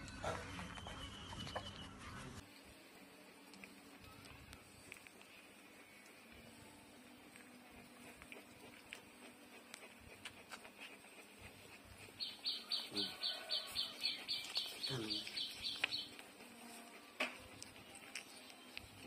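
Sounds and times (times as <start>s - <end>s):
bird chirping rapidly: 12.2s - 16.1s.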